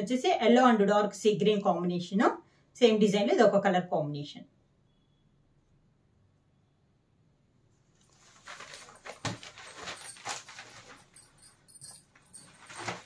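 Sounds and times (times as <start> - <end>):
cloth rustling and flapping: 8.0 - 13.0.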